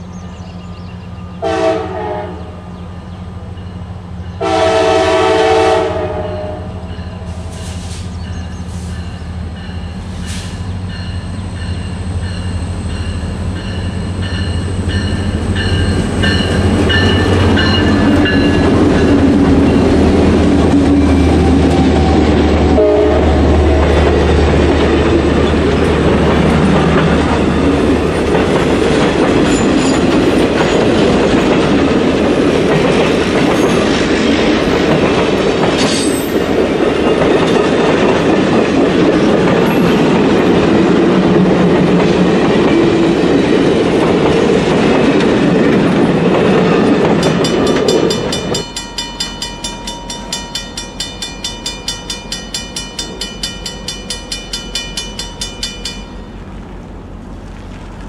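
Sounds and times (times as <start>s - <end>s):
crossing bell ringing rapidly: 9.0s - 10.1s, 10.9s - 20.2s, 46.7s - 56.4s
train wheels clattering over rails: 23.6s - 56.2s.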